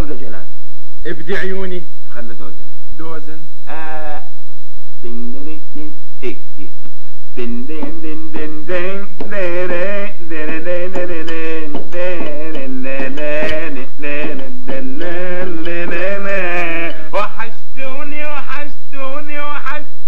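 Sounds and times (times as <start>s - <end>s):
man singing: 3.6s - 4.4s, 5.0s - 20.0s.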